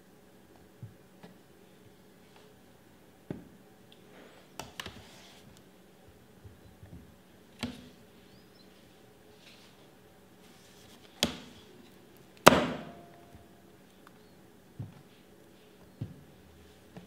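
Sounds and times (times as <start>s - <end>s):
soft sliding sound: 4.1s - 5.6s, 8.7s - 11.1s.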